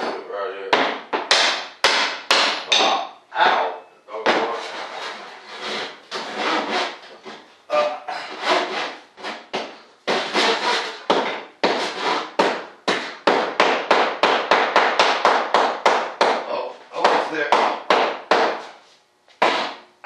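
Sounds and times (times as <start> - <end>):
hand saw strokes: 4.4 - 9.5, 10.1 - 13.2.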